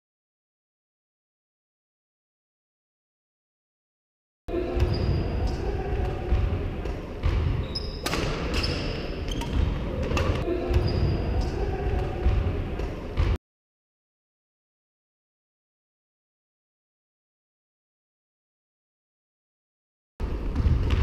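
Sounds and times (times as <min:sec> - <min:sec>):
sneakers squeaking: 0:04.5 - 0:13.4
racket striking shuttlecock: 0:06.8 - 0:10.4.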